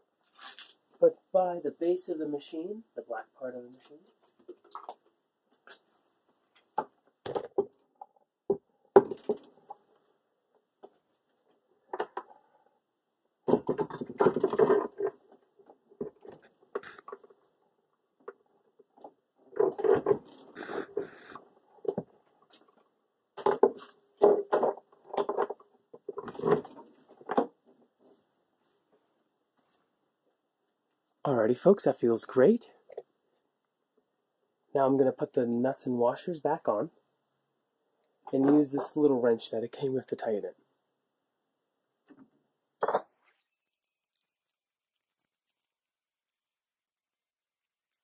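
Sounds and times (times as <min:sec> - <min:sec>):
metallic ring: 0:42.8 - 0:43.2.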